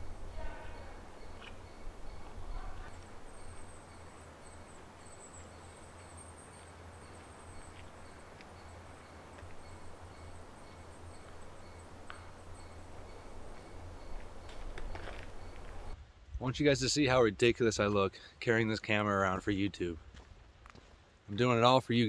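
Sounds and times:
low wind rumble: 0.0s - 17.6s.

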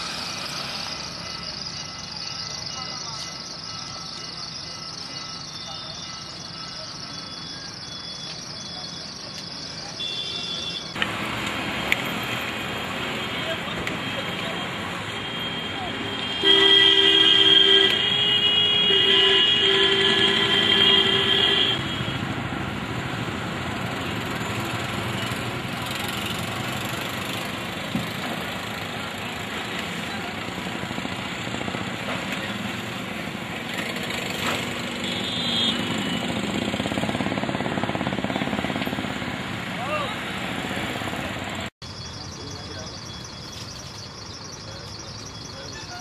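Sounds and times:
street traffic: 0.0s - 46.0s
high horn beep: 9.5s - 11.0s, 13.0s - 22.3s, 35.0s - 36.5s
vehicle horn blaring: 10.0s - 10.9s, 13.1s - 22.2s, 35.0s - 36.4s.

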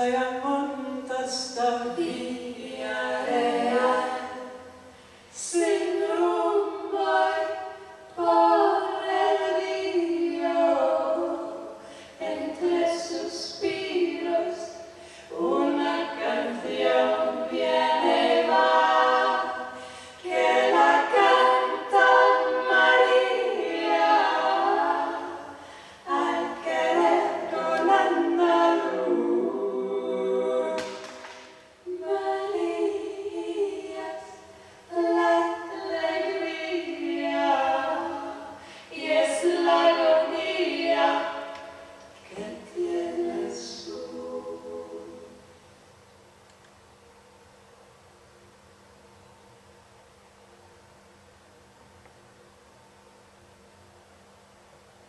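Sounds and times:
women singing a cappella: 0.0s - 45.7s.

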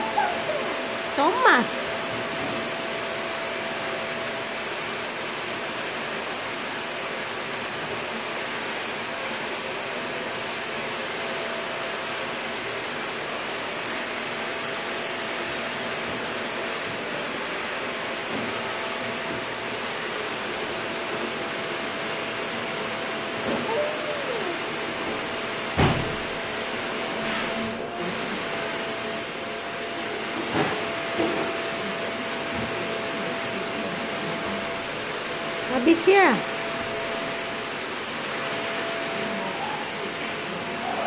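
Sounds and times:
faint high tone: 23.6s - 24.7s.

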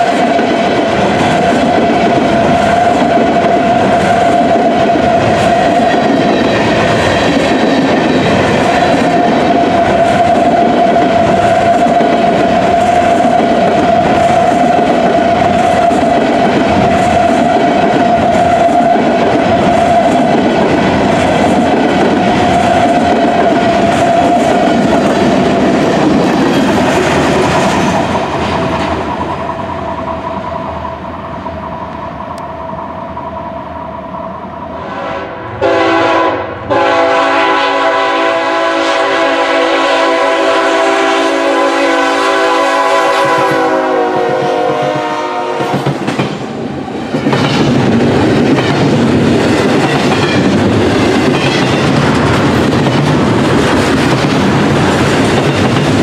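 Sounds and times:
freight train cars rolling past: 0.0s - 56.0s
locomotive air horn: 34.8s - 45.8s.

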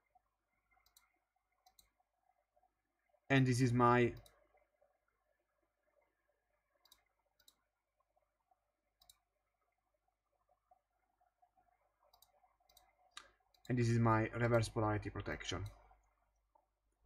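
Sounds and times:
faint computer mouse clicks: 0.8s - 1.9s, 6.8s - 7.6s, 9.0s - 9.2s, 12.1s - 13.8s.

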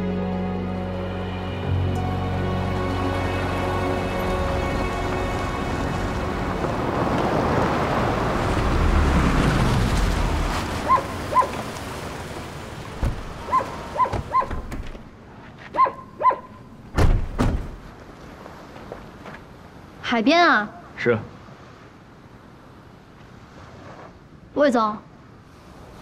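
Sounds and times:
background music: 0.0s - 7.9s
car driving over gravel: 4.7s - 15.1s
car door shutting: 13.0s - 15.1s, 16.9s - 17.8s.

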